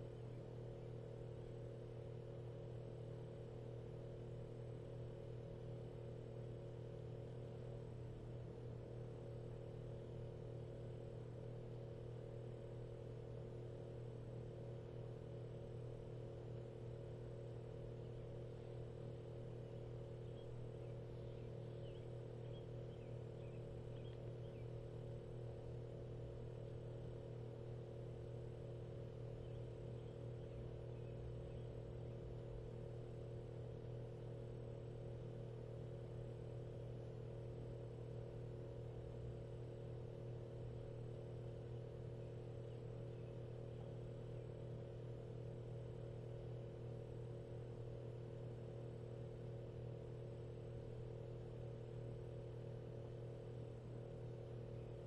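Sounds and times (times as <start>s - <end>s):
faint high whine: 0.0s - 48.3s
low mechanical hum: 0.0s - 55.0s.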